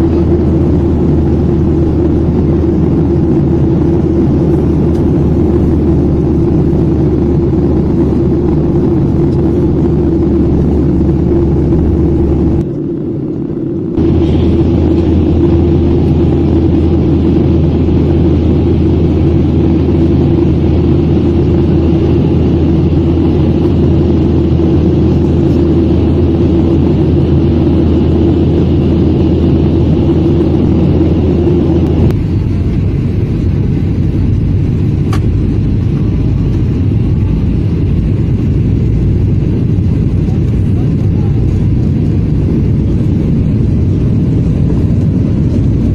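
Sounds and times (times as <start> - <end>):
jet engine cabin rumble: 0.0 - 45.9.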